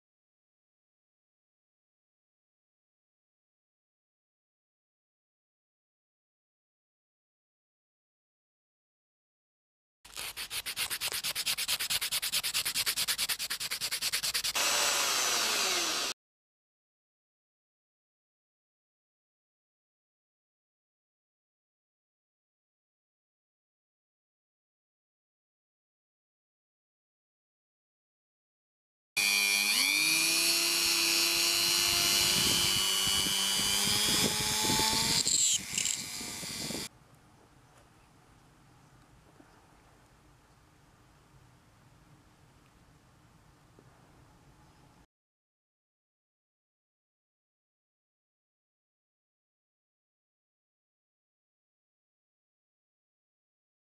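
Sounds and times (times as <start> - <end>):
sandpaper rubbing on wood: 10.1 - 14.7
rotary tool drilling into wood: 14.2 - 16.2, 29.2 - 36.9.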